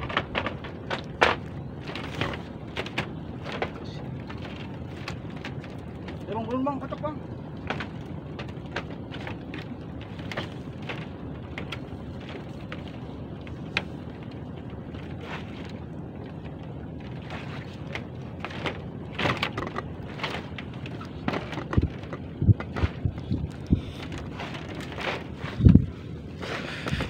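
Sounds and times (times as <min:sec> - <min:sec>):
wind and sea rumble: 0:00.0 - 0:27.0
sharp clicks and knocks: 0:17.9 - 0:25.3.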